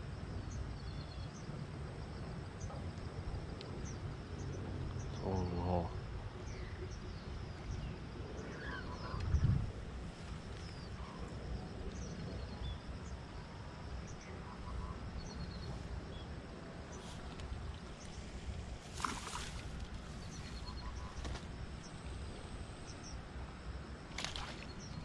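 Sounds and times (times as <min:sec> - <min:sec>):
small birds chirping: 0:03.7 - 0:09.6, 0:16.9 - 0:22.2.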